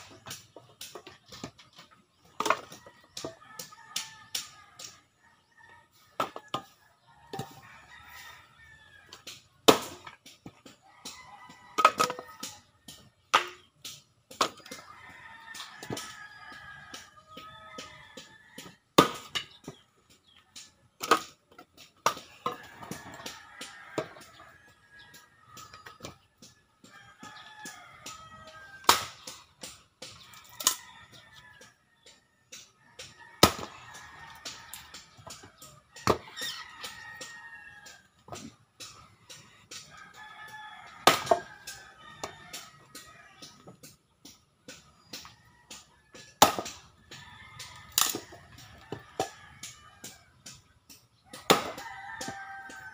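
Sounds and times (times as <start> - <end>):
rooster crowing: 7.2 - 9.2, 33.0 - 38.5, 39.3 - 43.2, 51.3 - 52.9
axe chopping wood: 9.2 - 10.8, 13.0 - 14.9, 17.8 - 19.6, 28.8 - 30.7, 33.4 - 39.0, 41.0 - 43.7, 44.7 - 47.2, 51.3 - 52.9.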